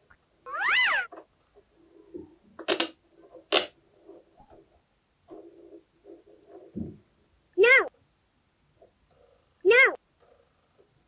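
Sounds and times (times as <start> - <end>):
rubber toy squeaks: 0.5 - 1.1
faint rubbing: 3.1 - 6.8.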